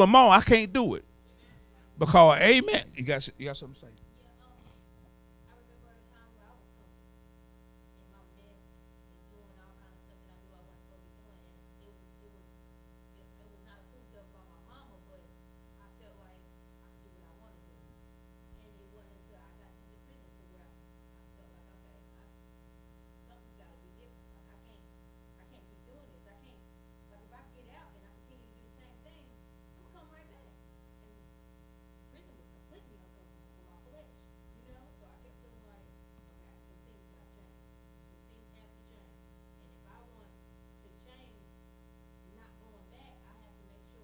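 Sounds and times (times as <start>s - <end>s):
steady electrical hum: 0.0s - 44.0s.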